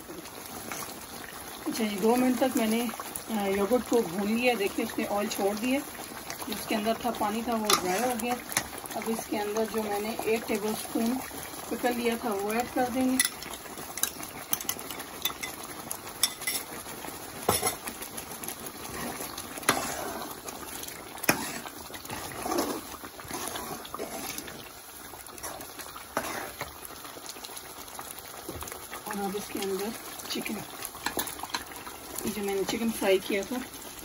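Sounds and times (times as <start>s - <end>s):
soft sizzle: 0.0s - 34.0s
spoon scraping a pot: 7.6s - 8.7s, 18.9s - 20.4s, 21.2s - 24.6s, 25.4s - 26.7s.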